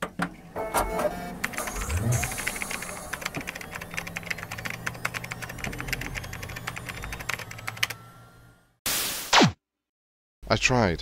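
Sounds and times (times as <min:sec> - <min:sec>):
keyboard typing: 0:01.4 - 0:08.0.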